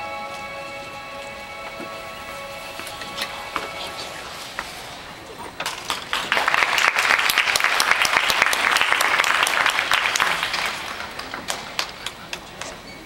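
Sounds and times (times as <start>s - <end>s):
audience applauding: 5.6s - 12.3s.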